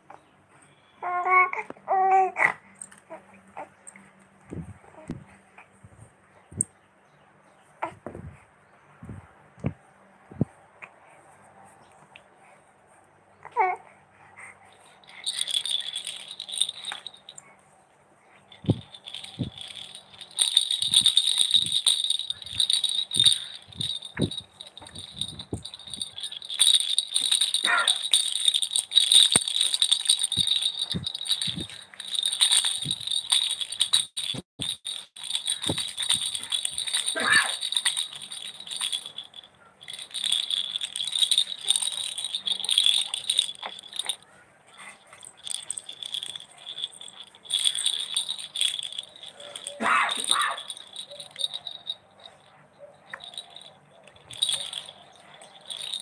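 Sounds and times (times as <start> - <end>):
plastic toy rattle shaking: 14.8 - 17.4, 18.4 - 44.2, 44.8 - 56.0.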